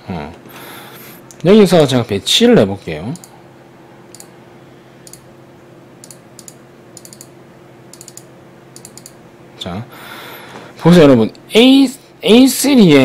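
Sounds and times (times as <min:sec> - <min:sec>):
faint steady hum: 0:00.0 - 0:13.0
computer mouse clicks: 0:04.1 - 0:04.3, 0:05.0 - 0:05.2, 0:06.0 - 0:07.3, 0:07.9 - 0:09.2.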